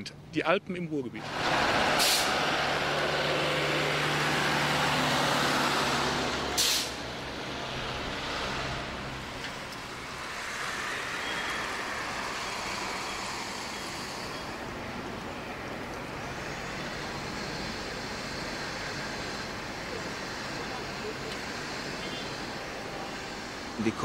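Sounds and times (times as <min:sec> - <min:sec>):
lorries driving past: 0:00.0 - 0:24.0
air-brake hiss: 0:02.0 - 0:02.4, 0:06.5 - 0:07.0.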